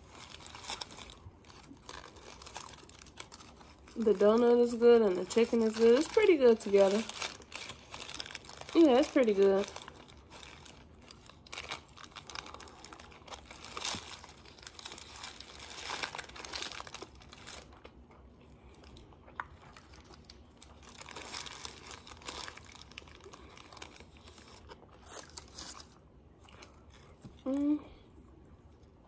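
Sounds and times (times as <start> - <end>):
paper wrapper crinkling: 0.0 - 17.9, 19.6 - 26.0.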